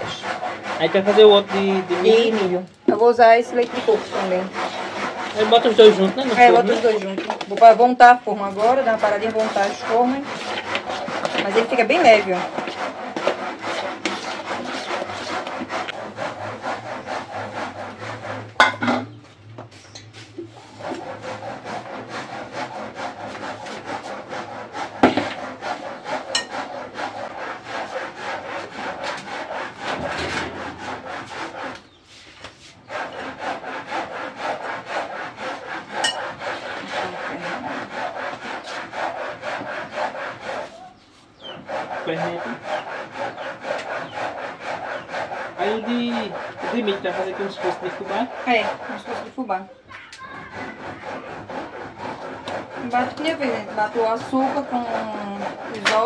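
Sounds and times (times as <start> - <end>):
hands rubbing and scraping: 0.0 - 18.7, 19.6 - 24.2, 25.0 - 33.2.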